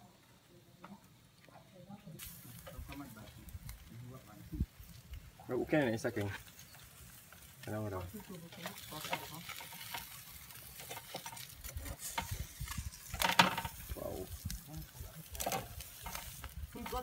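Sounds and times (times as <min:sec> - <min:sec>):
faint sizzle: 0:00.0 - 0:17.0
metal tongs scraping grill grate: 0:06.1 - 0:17.0.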